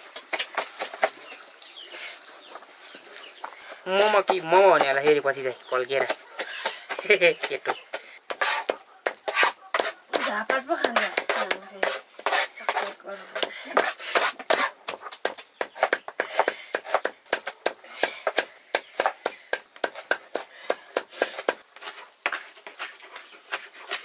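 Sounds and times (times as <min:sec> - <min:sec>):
cleaver chopping meat on wood: 0:05.9 - 0:12.8, 0:13.4 - 0:22.4.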